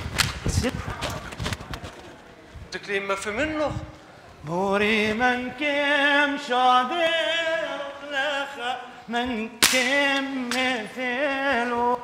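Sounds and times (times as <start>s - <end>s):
sharp crack: 0.0s - 0.6s, 9.6s - 10.8s.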